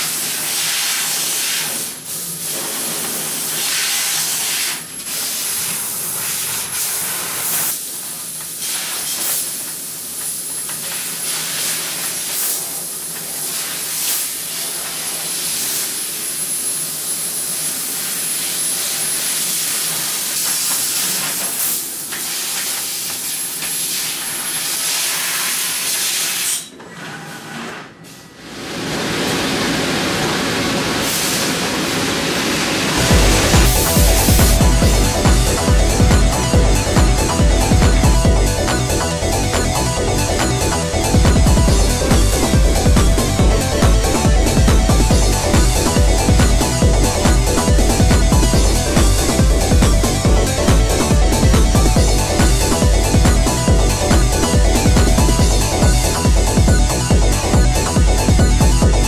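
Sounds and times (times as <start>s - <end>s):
laser cutter gas jet hissing: 0.0s - 26.6s.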